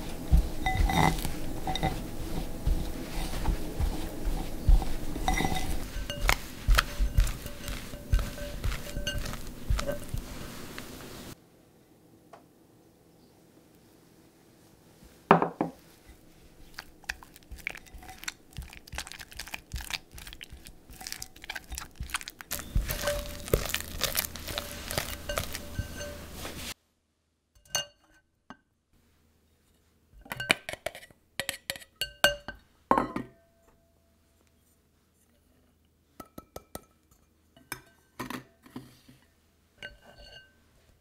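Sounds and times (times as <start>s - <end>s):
spatula scraping batter: 0.0s - 11.4s, 15.8s - 26.8s
metal clinking on glass: 0.6s - 2.0s, 4.3s - 10.2s, 22.5s - 26.3s.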